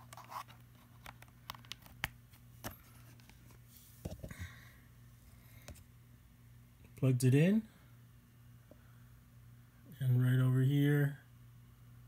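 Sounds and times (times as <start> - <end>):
faint low steady hum: 0.0 - 12.0.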